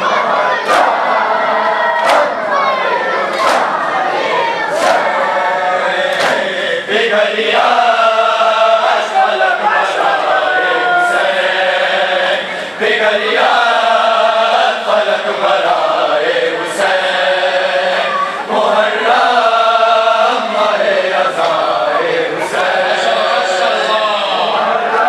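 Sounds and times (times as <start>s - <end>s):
men chanting a lament: 0.0s - 25.0s.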